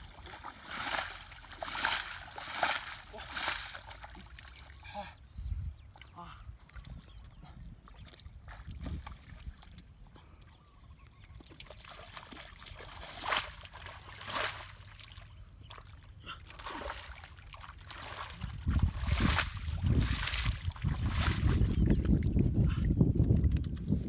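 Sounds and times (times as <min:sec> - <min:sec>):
bare feet splashing in mud: 0:00.0 - 0:04.8, 0:11.5 - 0:22.4
wind rumbling on microphone: 0:06.5 - 0:10.0, 0:18.2 - 0:24.0.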